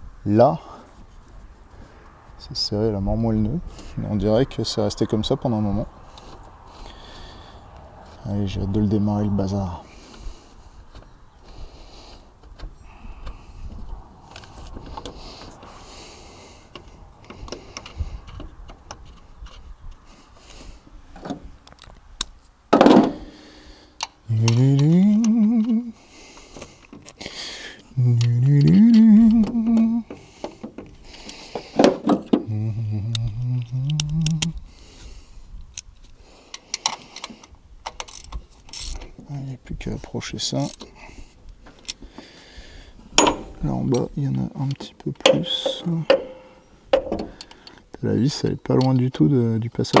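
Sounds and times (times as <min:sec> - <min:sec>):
man humming: 0:24.3 - 0:26.0, 0:27.9 - 0:30.2, 0:32.4 - 0:34.6, 0:45.3 - 0:46.6
metal clinks and scrapes: 0:45.2 - 0:47.1.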